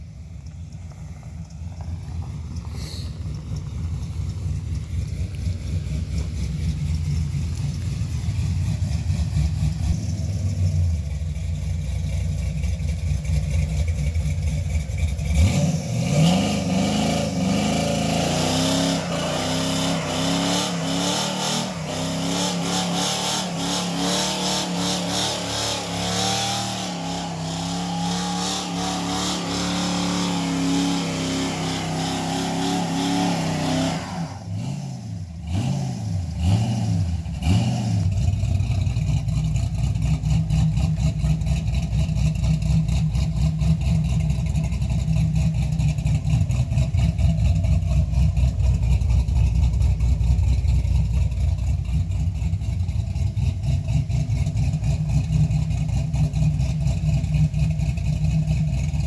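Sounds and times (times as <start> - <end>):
spinning tyre hissing: 0.1 - 13.2, 14.6 - 35.0
truck engine revving: 15.0 - 39.1.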